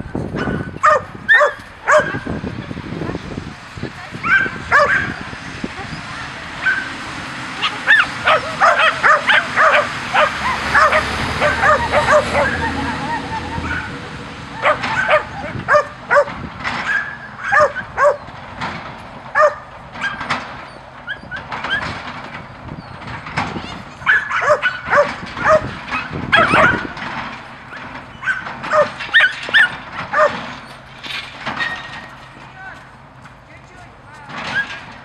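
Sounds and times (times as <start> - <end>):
dog yipping: 0.4 - 2.4, 4.2 - 5.3, 6.6 - 6.9, 7.6 - 14.0, 14.6 - 18.3, 19.4 - 22.0, 23.6 - 27.0, 27.7 - 30.8.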